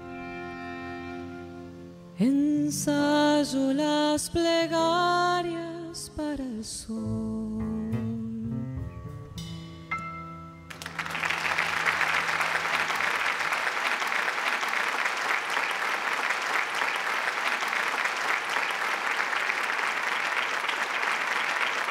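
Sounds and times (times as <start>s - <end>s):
band's low note ringing: 7.7s - 12.4s
audience applauding: 10.7s - 21.9s.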